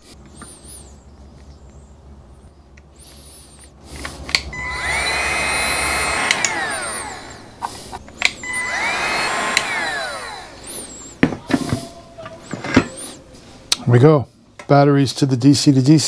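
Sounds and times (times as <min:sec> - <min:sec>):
heat gun fan whine: 0:02.8 - 0:13.3
heat gun switch click: 0:06.1 - 0:07.4, 0:09.5 - 0:09.8.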